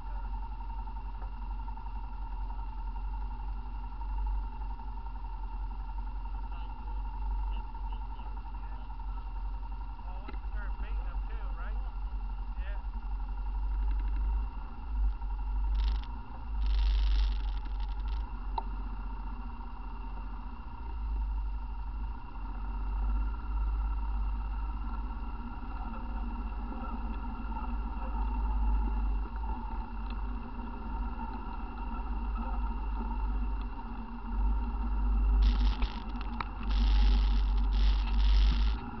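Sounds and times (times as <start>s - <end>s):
atv engine running: 0.0s - 39.0s
rushing noise: 35.4s - 39.0s.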